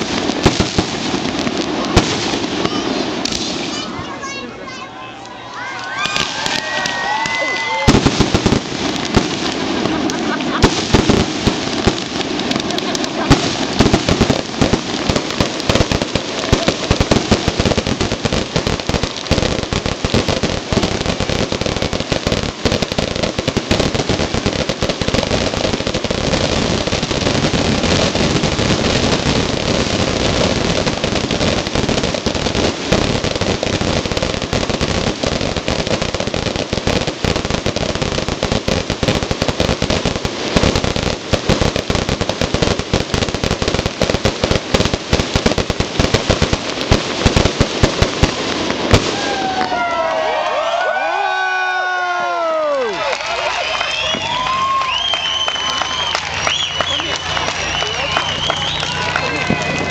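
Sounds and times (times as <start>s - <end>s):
fireworks popping and crackling: 0.0s - 59.9s.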